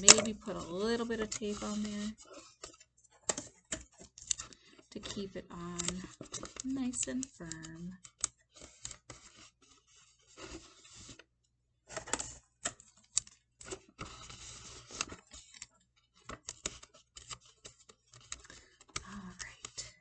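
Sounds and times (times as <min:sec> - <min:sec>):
tape and cardboard rustling: 0:00.0 - 0:11.3, 0:11.9 - 0:20.0
sharp clicks and taps: 0:05.0 - 0:09.0.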